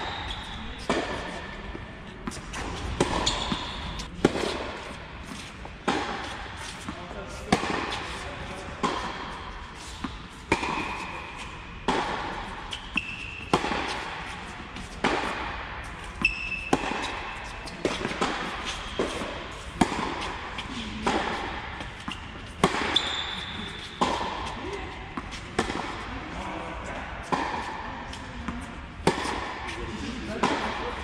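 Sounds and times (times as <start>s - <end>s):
shoes squeaking on court: 0.0s - 5.7s, 12.4s - 15.1s, 16.0s - 21.0s, 21.8s - 25.7s
racket striking tennis ball: 0.0s - 26.4s, 27.0s - 31.0s
tennis ball bouncing: 0.1s - 26.1s, 27.2s - 31.0s.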